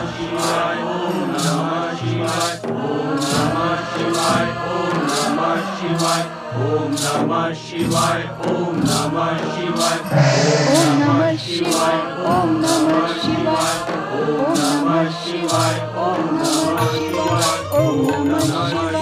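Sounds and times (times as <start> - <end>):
background music: 0.0 - 19.0
choir chanting: 0.0 - 19.0
short high percussion stroke: 10.0 - 12.0.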